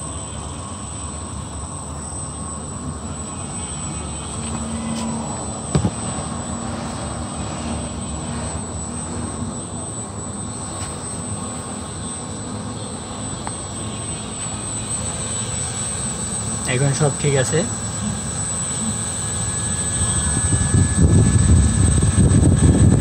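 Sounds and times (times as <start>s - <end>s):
outdoor unit fans and compressors: 0.0s - 23.0s
sharp knock: 5.7s - 6.0s.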